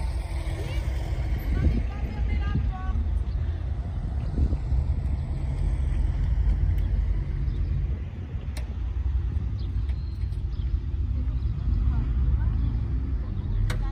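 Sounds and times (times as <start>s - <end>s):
car engine idling: 0.0s - 10.9s.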